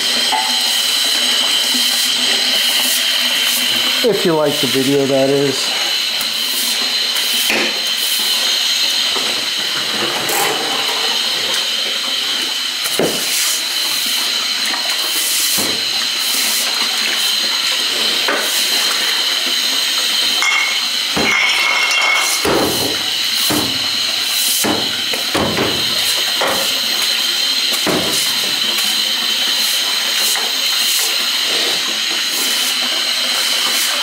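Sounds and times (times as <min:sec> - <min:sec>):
cable clanking in drain: 0:20.0 - 0:28.9.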